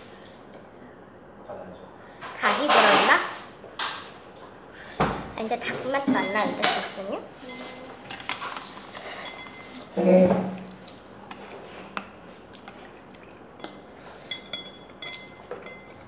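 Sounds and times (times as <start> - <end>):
chopsticks clinking on ceramic bowl: 6.2 - 9.8, 12.7 - 16.0.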